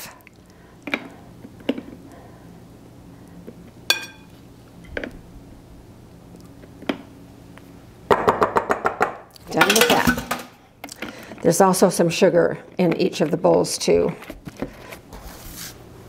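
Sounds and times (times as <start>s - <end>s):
faint steady hum: 0.0s - 16.0s
metal spoons clinking on glass bowl: 3.9s - 4.3s.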